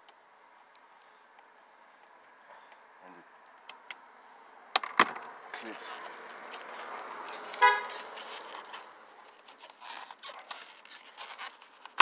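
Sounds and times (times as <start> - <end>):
trim scraping: 5.6 - 12.0.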